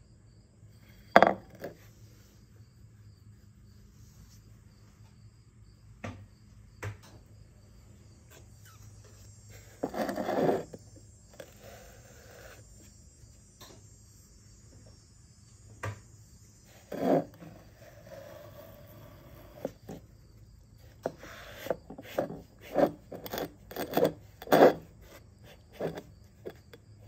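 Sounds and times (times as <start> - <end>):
coaster knocking on wooden table: 1.2 - 1.7.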